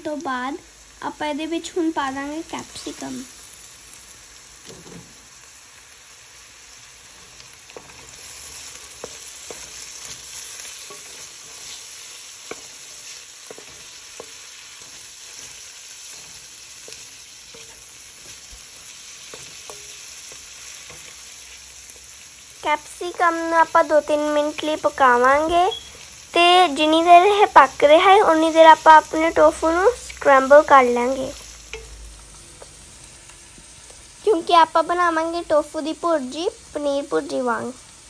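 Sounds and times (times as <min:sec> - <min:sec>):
vegetables sizzling in oil: 0:00.0 - 0:38.0
wooden spoon scraping pan: 0:07.8 - 0:20.0.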